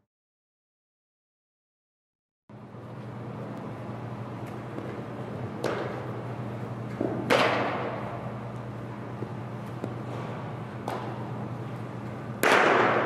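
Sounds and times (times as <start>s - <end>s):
indoor room hum: 2.5s - 13.0s
baseball being hit: 5.6s - 6.2s, 6.9s - 8.2s, 9.7s - 11.4s, 12.3s - 13.0s.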